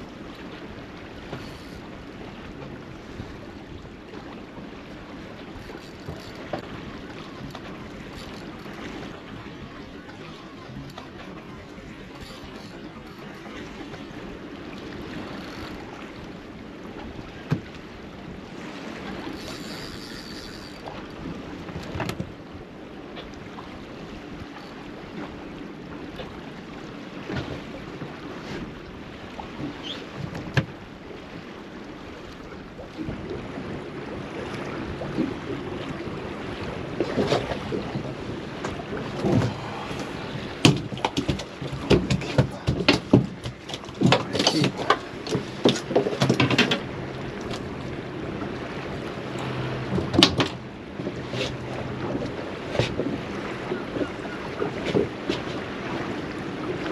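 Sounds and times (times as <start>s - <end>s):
wind: 0.0s - 56.9s
knocks and splashes: 17.4s - 17.8s, 29.6s - 30.8s, 36.9s - 53.4s.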